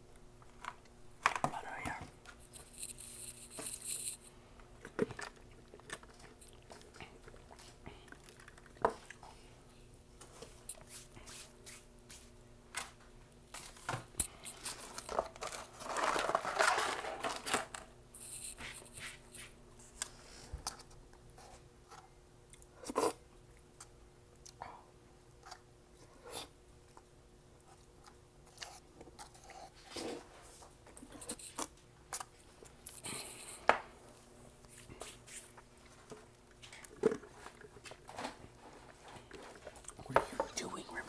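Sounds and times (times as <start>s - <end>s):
faint steady hum: 0.0s - 41.0s
chewing and mouth clicks: 4.8s - 9.3s
paper packaging crinkling: 14.5s - 19.5s.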